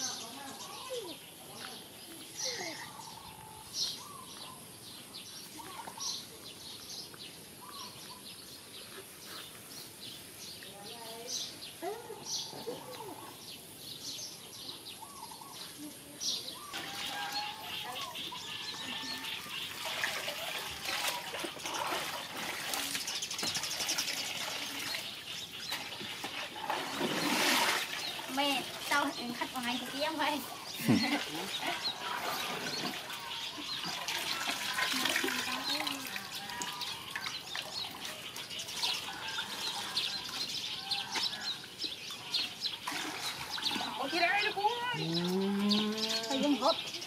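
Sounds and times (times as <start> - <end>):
birds chirping: 0.0 - 47.0
water trickling and splashing: 16.5 - 47.0.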